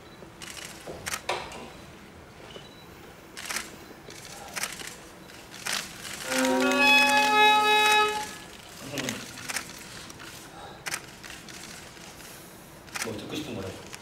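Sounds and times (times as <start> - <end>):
viola bowed note: 6.3 - 8.4.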